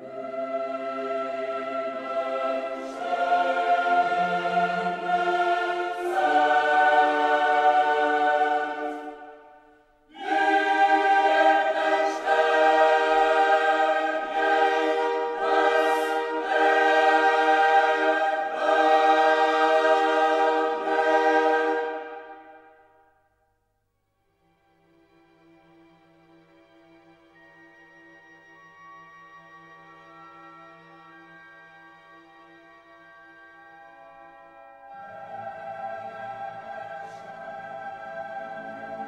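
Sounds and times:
choir singing held chords: 0.0s - 23.0s, 34.4s - 39.0s.

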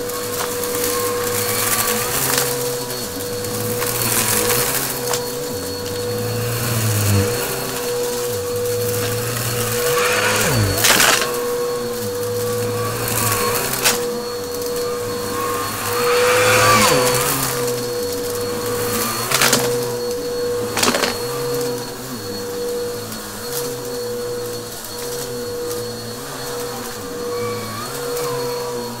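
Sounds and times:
debris cracking in vacuum: 0.0s - 21.8s
vacuum cleaner running: 0.0s - 29.0s.

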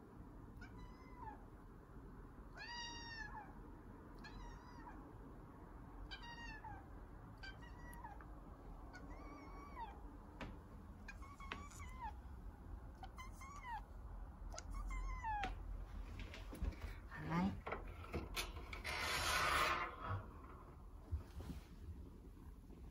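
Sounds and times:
kitten meowing: 2.6s - 3.5s, 4.2s - 5.0s, 6.1s - 6.8s, 7.4s - 8.2s, 8.9s - 10.0s, 11.1s - 12.2s, 13.0s - 13.9s, 14.5s - 15.6s.

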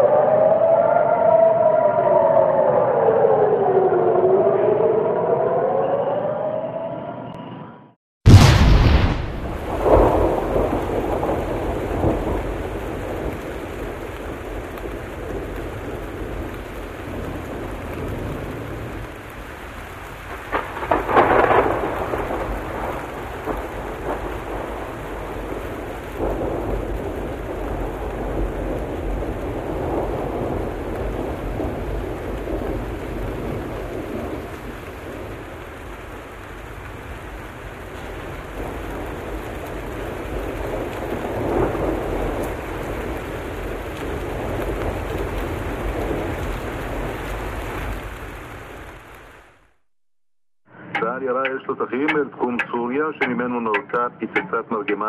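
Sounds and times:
thunder rumbling: 8.3s - 49.7s
heavy rain: 8.3s - 49.9s.

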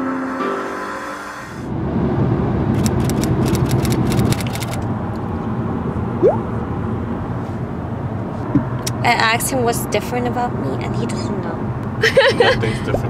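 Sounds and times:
car cabin road and engine rumble: 1.7s - 13.0s
sharp ticks: 2.8s - 4.8s.

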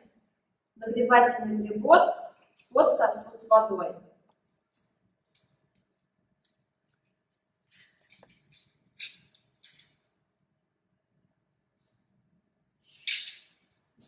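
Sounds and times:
metal lab parts clicking and scraping: 7.7s - 10.0s, 12.8s - 13.8s.

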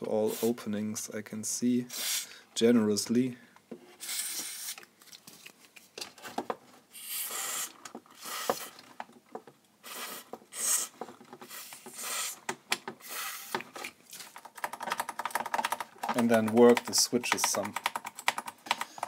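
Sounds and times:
spray can hissing: 7.0s - 8.7s, 9.8s - 10.9s, 11.5s - 12.4s.

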